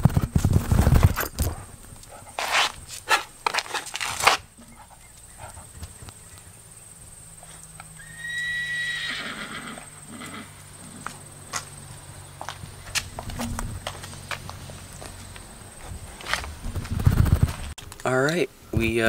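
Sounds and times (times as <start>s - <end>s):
clicks on concrete: 0.1s - 4.5s.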